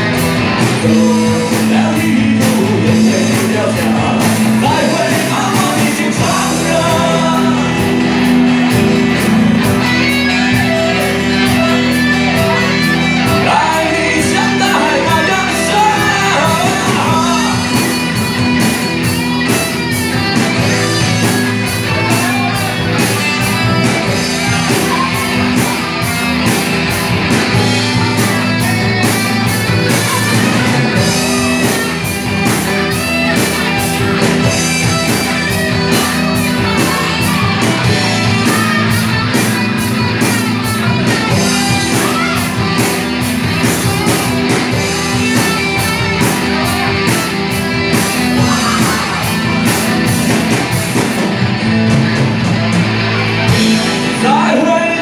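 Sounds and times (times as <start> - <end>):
rock band guitar and drums: 0.0 - 55.0
male singer: 0.6 - 8.2, 12.3 - 17.9, 54.1 - 55.0.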